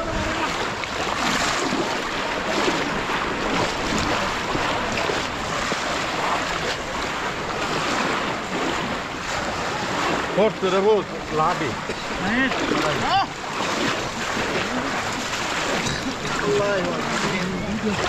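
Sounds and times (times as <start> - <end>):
wind on microphone: 0.0 - 10.4
people wading through water: 0.0 - 18.0.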